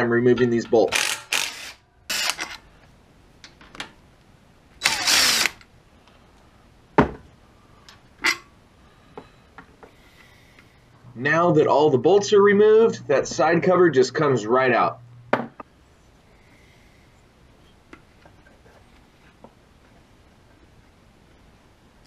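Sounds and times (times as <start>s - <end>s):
impact driver running: 0.9s - 2.6s, 4.8s - 5.6s.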